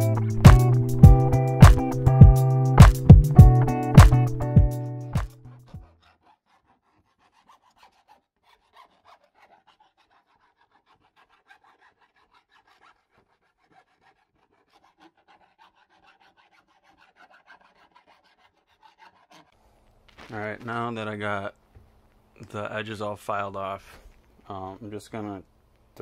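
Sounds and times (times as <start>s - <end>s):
file rasping on sheet metal: 5.5s - 19.6s.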